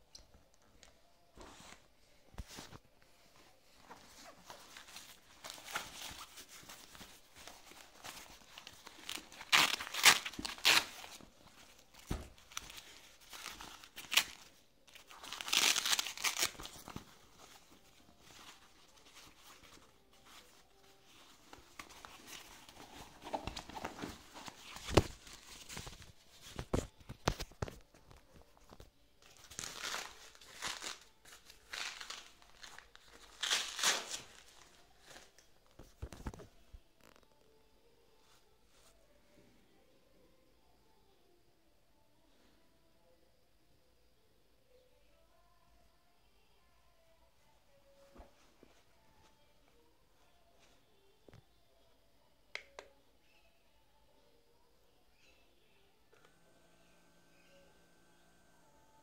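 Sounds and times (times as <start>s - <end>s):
fabric cuff rustling: 2.4s - 28.8s.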